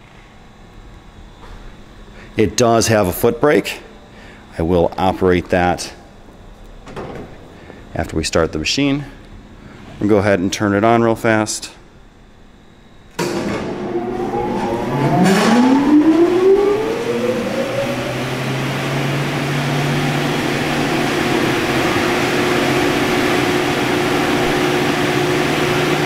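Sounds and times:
bandsaw motor whine: 0:13.2 - 0:26.0.

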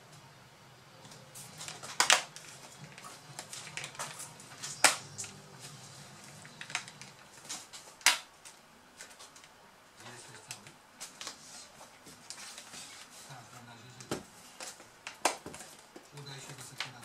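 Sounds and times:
plastic clips snapping into place: 0:08.0 - 0:08.6.

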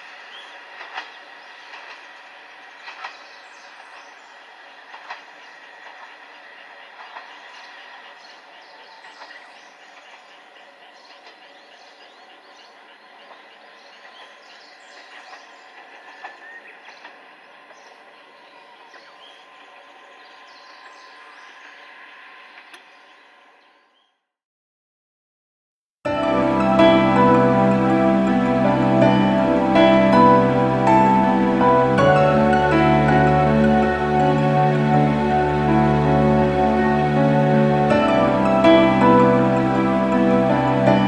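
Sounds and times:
train wheels rumbling on rails: 0:00.0 - 0:11.5
clicks from rail joints: 0:00.8 - 0:03.9, 0:04.9 - 0:08.1.

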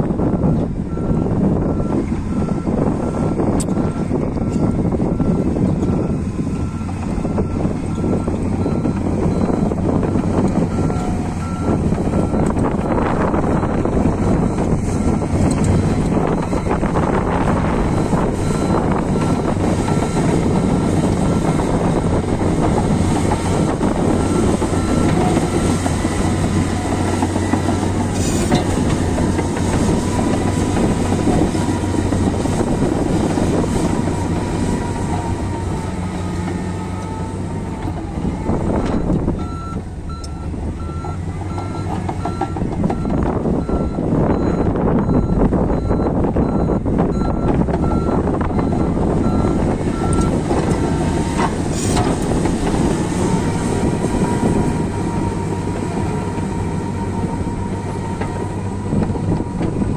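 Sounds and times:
bulldozer diesel engine under load: 0:00.0 - 0:59.9
reversing alarm beeping: 0:00.3 - 0:37.4, 0:38.6 - 0:55.4
steel tracks clanking: 0:15.4 - 0:43.4.

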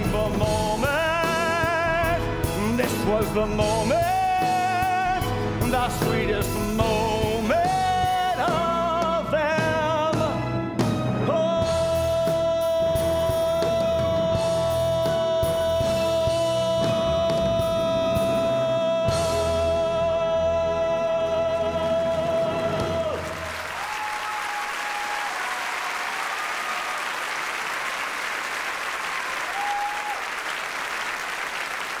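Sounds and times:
man singing: 0:00.0 - 0:23.5
orchestra playing: 0:00.0 - 0:23.6
audience applauding and cheering: 0:21.6 - 0:32.0.

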